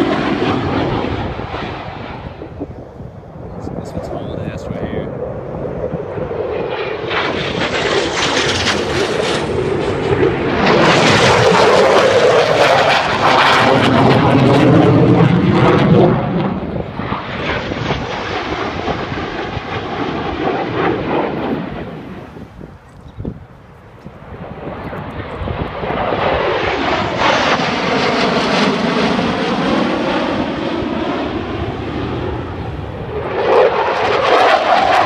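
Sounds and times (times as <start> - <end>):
fighter jets flying past: 0.0 - 35.0.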